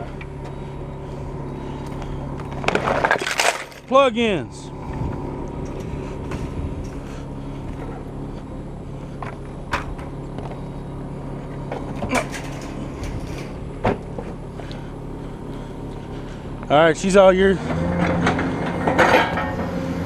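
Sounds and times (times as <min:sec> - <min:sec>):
diesel engine idling: 0:00.0 - 0:20.0
sharp metal clanks: 0:18.1 - 0:19.8.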